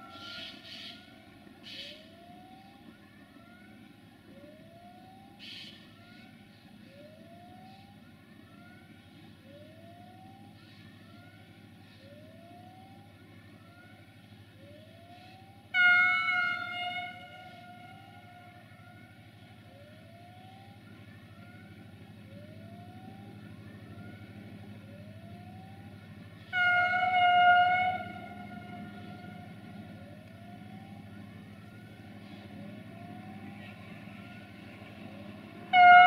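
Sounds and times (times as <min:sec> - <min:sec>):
loud train horn: 0:15.7 - 0:18.3, 0:26.4 - 0:29.6, 0:35.7 - 0:36.0.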